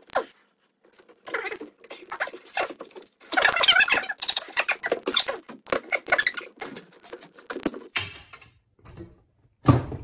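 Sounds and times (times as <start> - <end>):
rubber seal rubbing and squeaking: 0.0 - 7.8.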